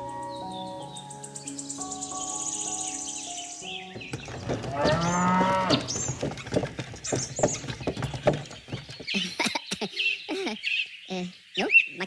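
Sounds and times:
high chirping calls: 0.0 - 6.3, 7.0 - 12.0
hooves clip-clopping: 4.0 - 9.8.

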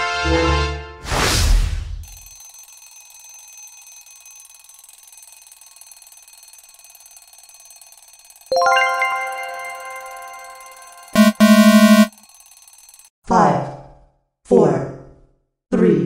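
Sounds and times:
wrong answer buzzer burst: 11.2 - 12.1.

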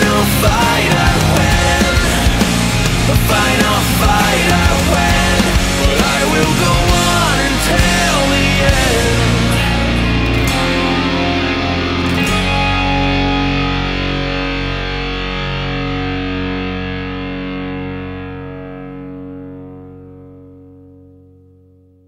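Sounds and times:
rock music with distorted guitar: 0.0 - 21.3.

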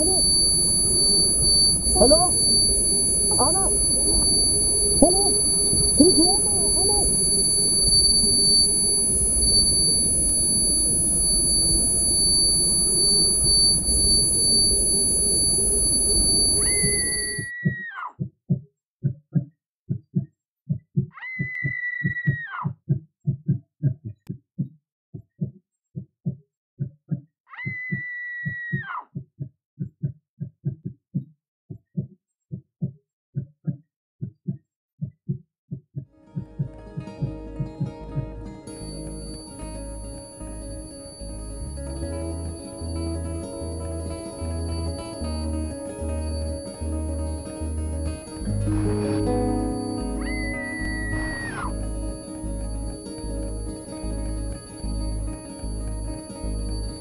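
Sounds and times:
low rumbling noise: 0.0 - 17.5, 36.5 - 56.1
high-pitched electronic beep: 0.0 - 17.6, 38.6 - 57.0
heartbeat thumps: 0.0 - 27.2, 29.2 - 39.6.

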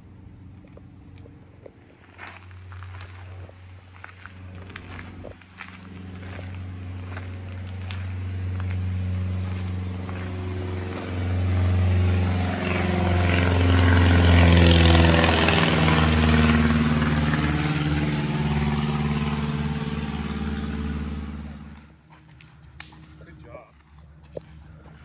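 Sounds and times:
propeller plane flying overhead: 0.0 - 25.0.

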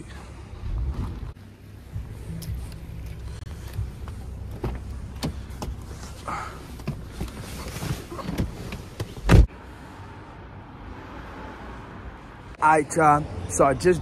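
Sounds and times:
car door shutting thump: 8.2 - 9.5.

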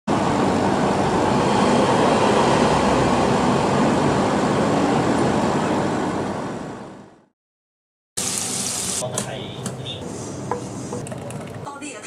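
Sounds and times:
city traffic noise: 0.1 - 7.3.

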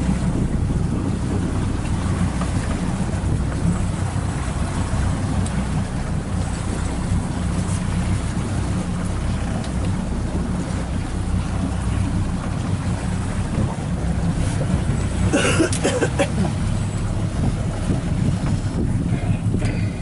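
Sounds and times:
motorboat engine running: 0.0 - 20.0
wind on microphone: 0.0 - 20.0.

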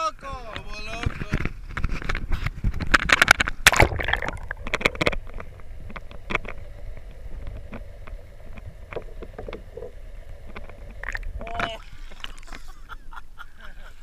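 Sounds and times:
clicks and ticks underwater: 0.5 - 12.6
muffled underwater rumble: 3.3 - 12.5.

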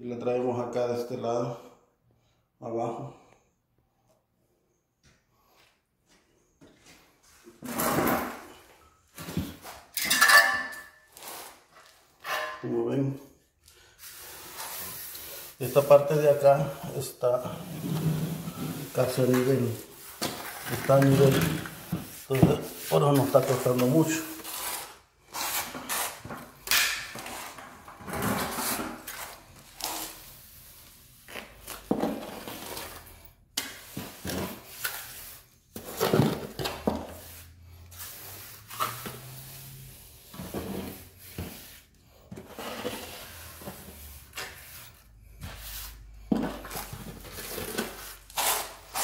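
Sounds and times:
trowel scraping wet cement: 14.0 - 26.3, 28.3 - 30.4, 46.6 - 49.0.

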